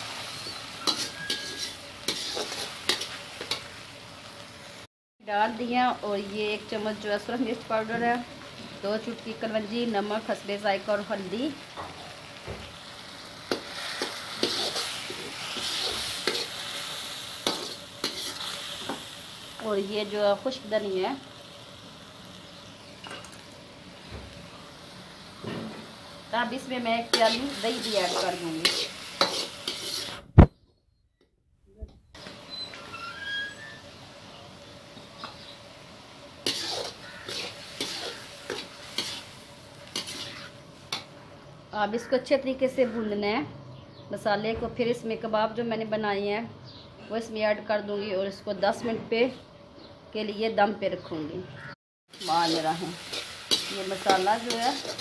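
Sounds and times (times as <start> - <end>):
frying sizzle: 0.0 - 30.5, 32.2 - 41.6, 52.1 - 55.0
spoon stirring sizzling sauce: 0.1 - 3.8, 13.4 - 19.2, 27.0 - 30.2, 36.4 - 41.1, 52.1 - 55.0
spatula scraping metal pan: 0.4 - 3.6, 13.5 - 16.6, 17.4 - 18.6, 27.1 - 30.2, 36.4 - 40.6, 52.2 - 55.0.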